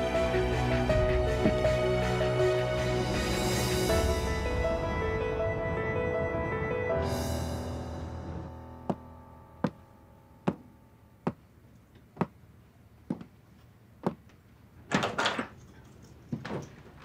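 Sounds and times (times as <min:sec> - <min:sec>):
footsteps on stairs: 0:10.5 - 0:11.5, 0:12.1 - 0:12.4, 0:13.0 - 0:13.4, 0:14.0 - 0:14.4.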